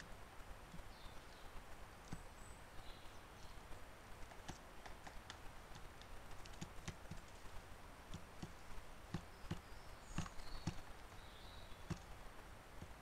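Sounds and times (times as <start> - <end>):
small animal moving over logs: 4.2 - 13.0.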